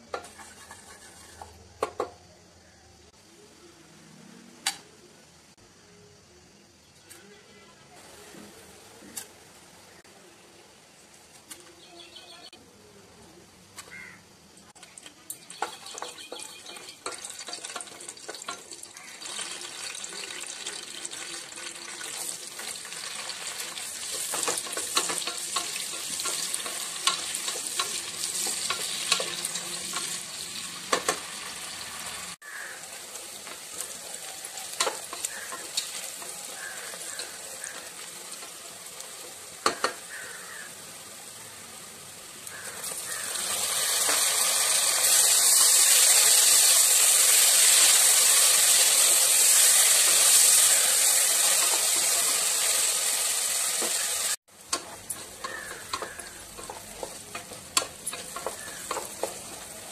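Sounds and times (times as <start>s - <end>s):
onions sizzling in hot oil: 0.0s - 2.6s, 8.0s - 12.6s, 13.4s - 59.9s
stirring clicks: 54.6s - 59.9s.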